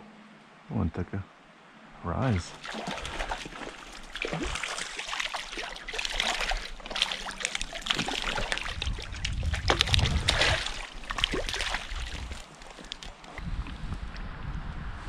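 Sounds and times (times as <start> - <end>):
fish splashing in water: 2.5 - 13.4
water sloshing in net: 2.5 - 13.4
low rumble: 8.3 - 11.2, 13.4 - 15.0.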